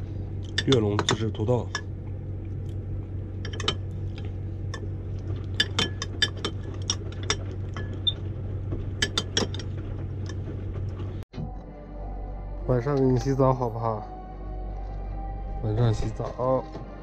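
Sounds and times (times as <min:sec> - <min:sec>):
steady low hum: 0:00.0 - 0:17.0
metal fork clinking on glass: 0:05.6 - 0:07.0.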